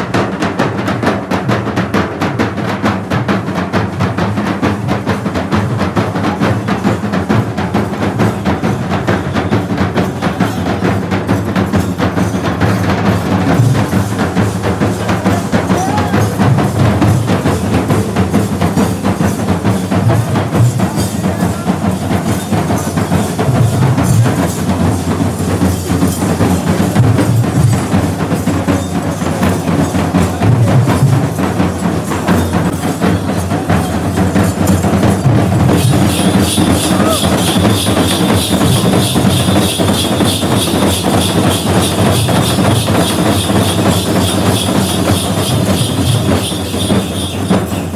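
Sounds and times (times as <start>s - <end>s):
percussion ensemble drumming: 0.0s - 47.9s
wood-block strikes: 5.4s - 47.9s
high steady ringing: 16.1s - 47.9s.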